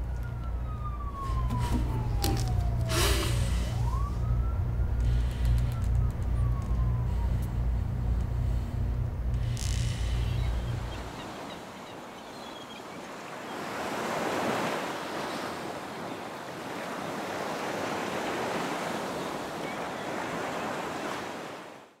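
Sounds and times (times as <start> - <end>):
low rumble: 0.0 - 11.1
ocean surf washing ashore: 9.5 - 22.0.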